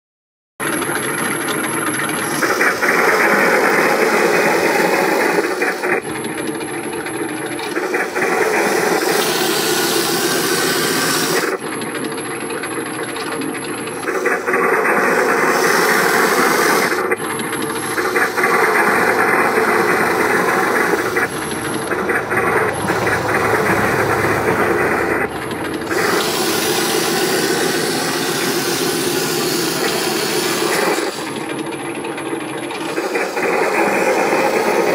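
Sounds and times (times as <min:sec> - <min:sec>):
robot motors whirring: 0:07.5 - 0:11.6, 0:13.2 - 0:31.6.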